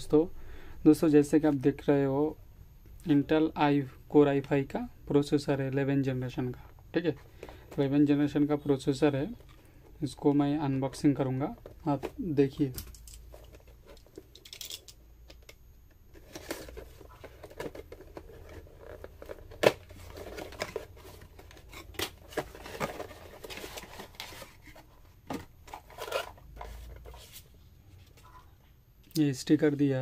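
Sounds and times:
cardboard packaging tearing and rustling: 0:16.2 - 0:24.8.

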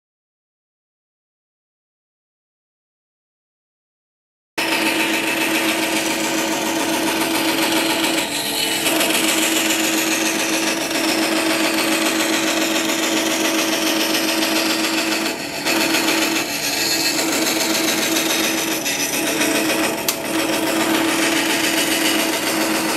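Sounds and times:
band saw motor hum: 0:04.6 - 0:22.9
saw blade cutting wood: 0:04.6 - 0:22.9.

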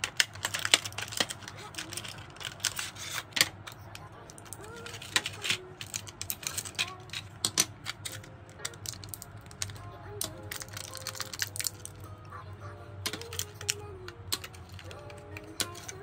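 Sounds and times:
plastic bag rustling: 0:00.0 - 0:12.0.

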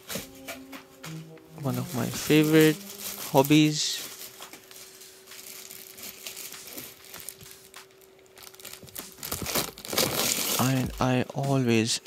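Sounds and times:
plastic bag crinkling: 0:01.6 - 0:11.1.

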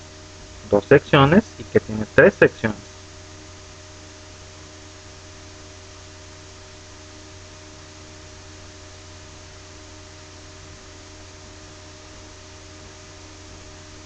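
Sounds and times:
background hiss: 0:00.0 - 0:02.9
low electrical hum: 0:00.0 - 0:14.0.

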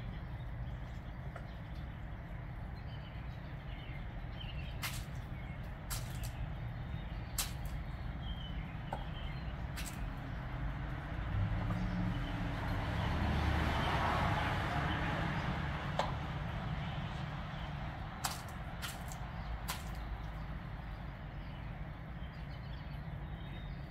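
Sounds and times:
motor vehicle rumbling: 0:00.0 - 0:23.9
peacock pecking on concrete: 0:04.6 - 0:08.0, 0:08.9 - 0:12.3, 0:15.9 - 0:20.4.

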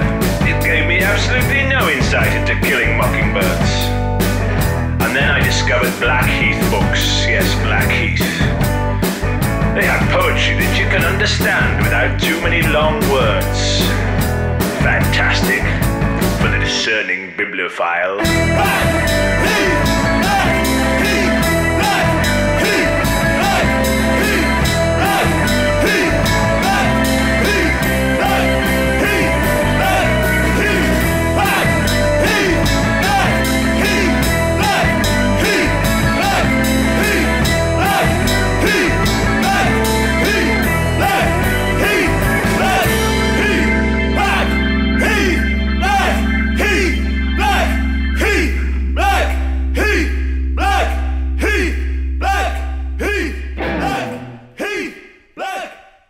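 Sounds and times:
background music with steady beat: 0:18.2 - 0:50.0.

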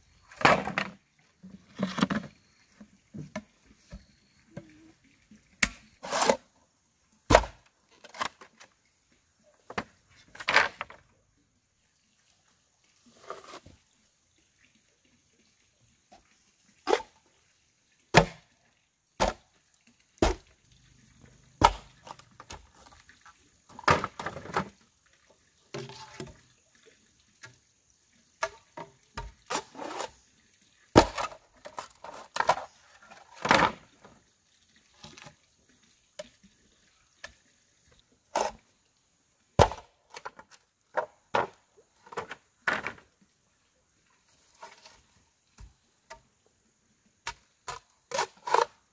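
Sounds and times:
machete chopping bamboo: 0:21.6 - 0:22.0.

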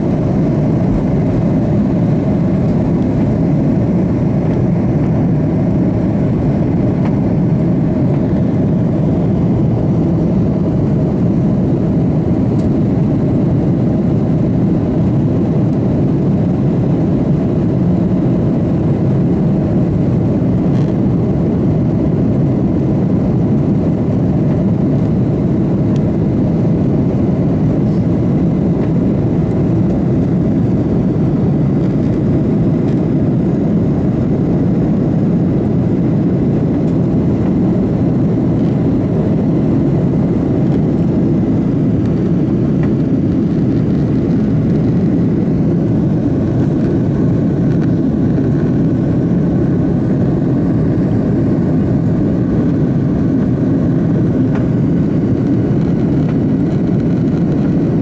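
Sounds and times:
jet engines rumbling: 0:00.0 - 0:58.0.

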